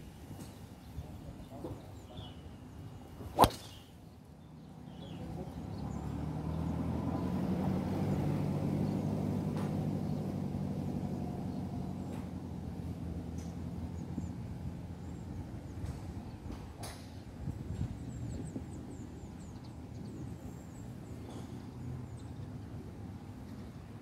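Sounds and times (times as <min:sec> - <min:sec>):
golf club striking ball: 0:03.3 - 0:03.9.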